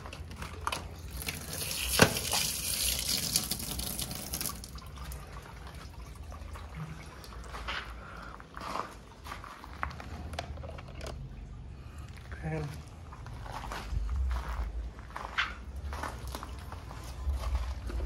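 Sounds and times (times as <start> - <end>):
water dripping: 0.5 - 10.1
water splashing over plastic toy: 0.8 - 7.6.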